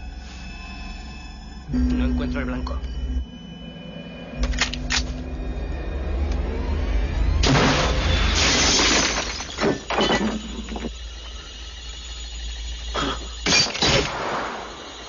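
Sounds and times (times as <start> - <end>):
glass shattering: 7.4 - 10.9.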